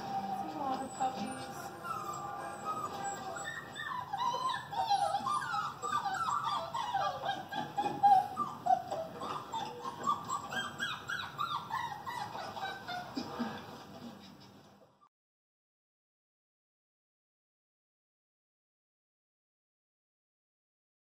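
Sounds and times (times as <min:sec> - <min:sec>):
dog whimpering and whining: 0:00.0 - 0:13.5.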